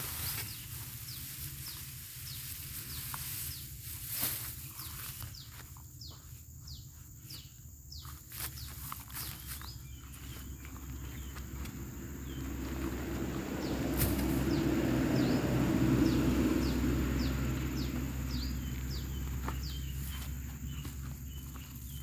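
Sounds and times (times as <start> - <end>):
high insect drone: 0.0 - 22.0
vehicle passing: 9.9 - 22.0.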